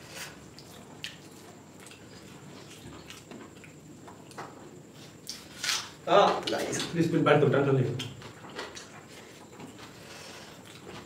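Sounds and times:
mouths chewing: 0:00.2 - 0:05.8.

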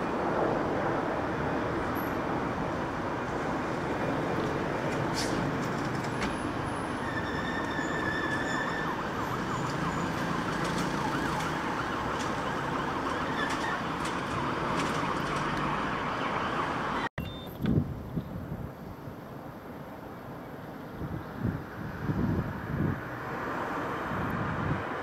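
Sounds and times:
rumble of train and city: 0:00.0 - 0:25.0
distant siren rising and falling: 0:06.3 - 0:17.6.

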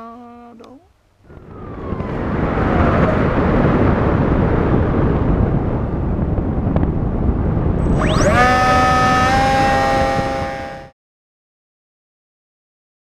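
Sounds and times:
wind rushing over microphone: 0:01.2 - 0:10.9
faint tone sliding down: 0:07.8 - 0:10.9.

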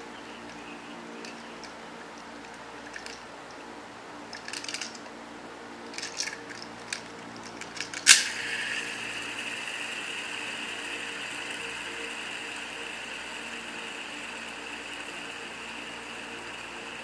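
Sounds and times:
fidget toy clicking and rattling: 0:00.4 - 0:03.3, 0:04.2 - 0:05.1, 0:05.9 - 0:17.0
spinner whirring: 0:05.8 - 0:17.0.

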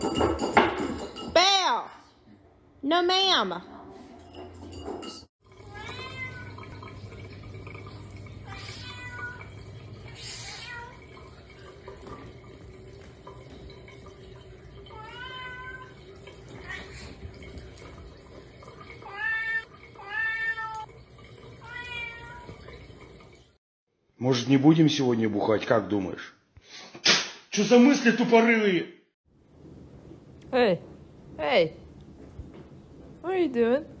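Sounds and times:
cat meowing: 0:05.6 - 0:06.7, 0:08.4 - 0:09.5, 0:14.9 - 0:17.1.

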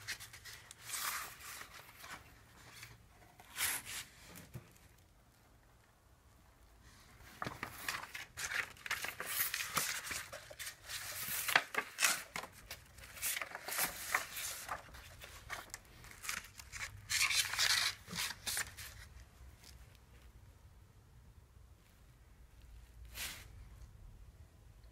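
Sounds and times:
paper or plastic sheets rustling: 0:07.2 - 0:19.8.

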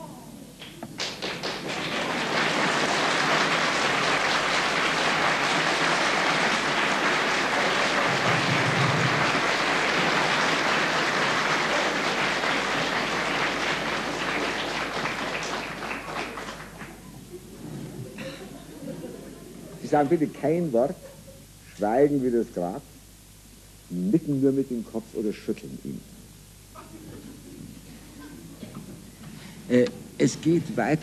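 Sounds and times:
audience applauding: 0:00.6 - 0:17.2.

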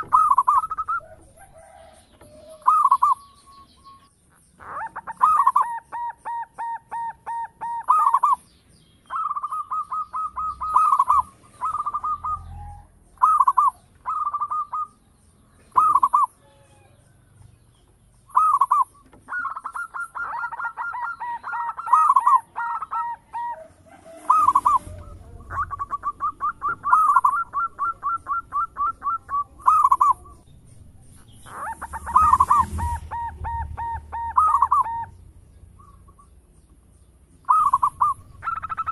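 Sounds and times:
dove cooing: 0:00.0 - 0:08.4, 0:09.0 - 0:15.0, 0:15.6 - 0:17.0, 0:18.3 - 0:35.2, 0:37.4 - 0:38.9
faint high chirps: 0:00.0 - 0:17.2.

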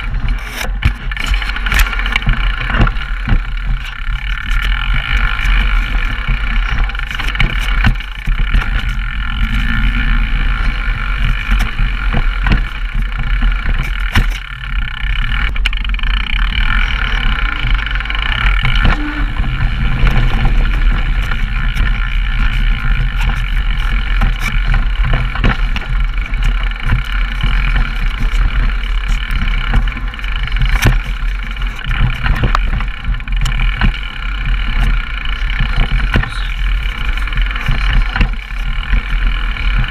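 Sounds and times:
bike rattles and knocks: 0:00.0 - 0:39.9
tyres rumbling on dirt: 0:00.0 - 0:39.9
wind rushing: 0:09.0 - 0:12.4, 0:16.5 - 0:22.5.

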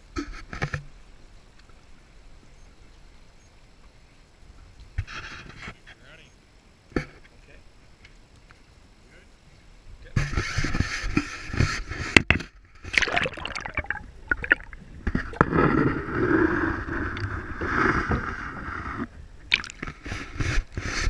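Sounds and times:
underwater gurgling: 0:12.7 - 0:20.4
river water splashing: 0:12.8 - 0:17.8, 0:19.5 - 0:20.4.

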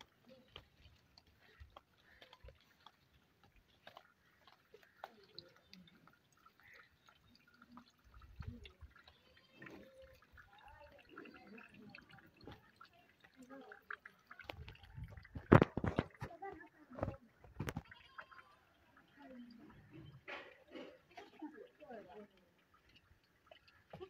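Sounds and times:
faint indistinct voices: 0:04.7 - 0:23.0.

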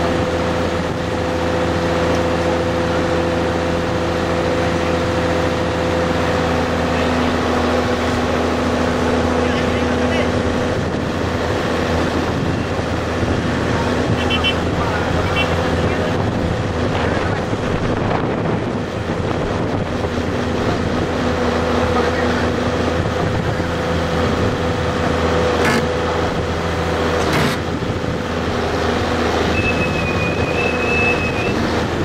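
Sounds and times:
excavator diesel engine humming: 0:00.0 - 0:32.0
short high tone: 0:29.5 - 0:31.6.

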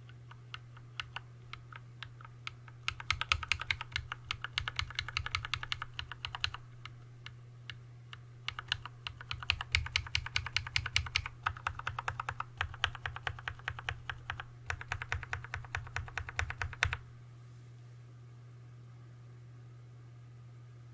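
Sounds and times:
mechanical keyboard typing: 0:00.0 - 0:07.0, 0:08.4 - 0:17.0
faint steady hum: 0:00.0 - 0:20.9.

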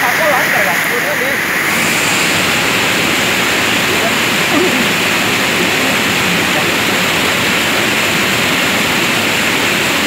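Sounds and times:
water rushing over spillway: 0:00.0 - 0:10.0.

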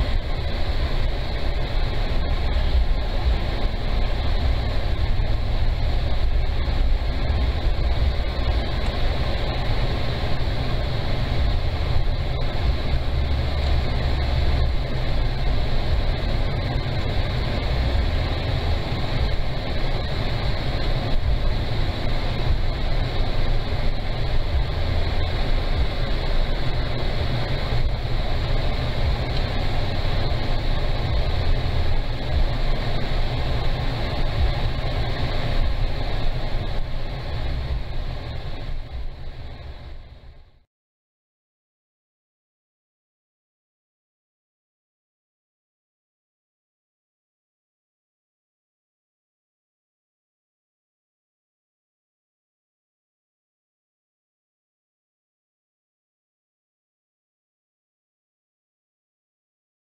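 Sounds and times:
car driving from inside cabin: 0:00.0 - 0:40.5
faint hiss: 0:00.0 - 0:40.7.

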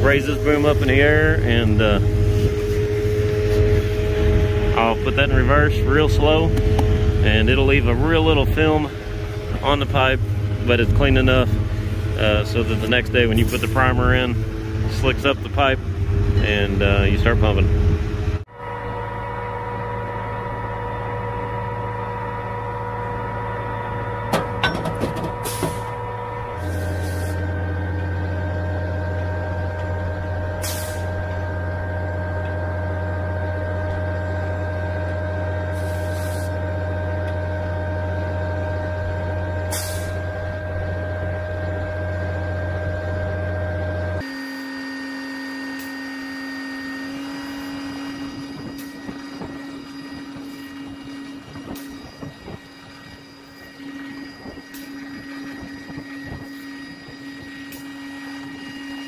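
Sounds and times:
deep machine hum: 0:00.0 - 0:59.0
higher-pitched hum: 0:00.0 - 0:59.0
hydraulic hisses: 0:25.4 - 0:26.0, 0:26.6 - 0:27.4, 0:30.6 - 0:31.2, 0:35.7 - 0:36.5.

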